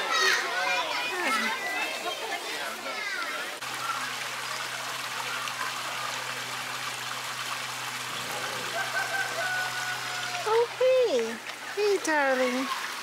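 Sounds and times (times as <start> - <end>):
fountain water splashing: 0.0 - 13.0.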